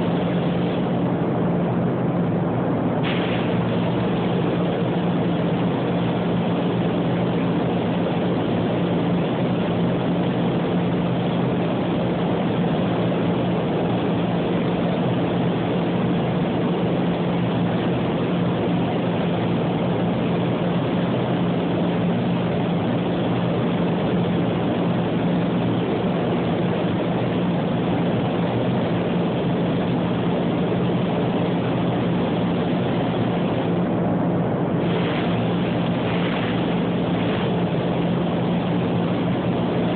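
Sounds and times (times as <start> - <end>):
ventilation fans humming: 0.0 - 39.9
rush of moving air: 34.6 - 38.0.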